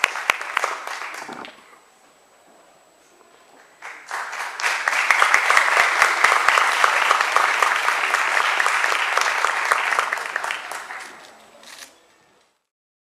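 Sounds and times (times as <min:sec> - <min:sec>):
audience applauding: 0:00.0 - 0:01.6, 0:03.8 - 0:11.4.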